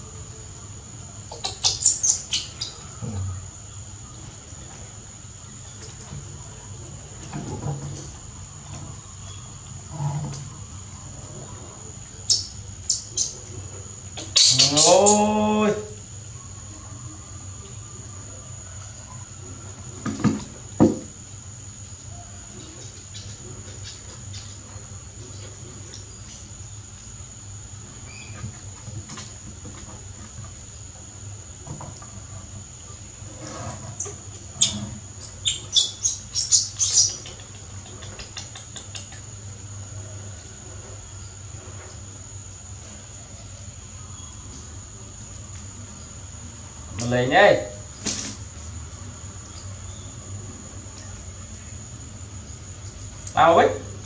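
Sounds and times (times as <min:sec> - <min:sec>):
monkey squeaking: 0:01.3 - 0:02.8, 0:34.6 - 0:39.2.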